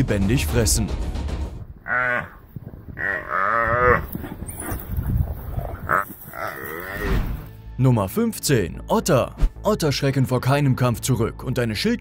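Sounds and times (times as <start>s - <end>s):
antelope bellowing in distress: 3.0s - 7.3s.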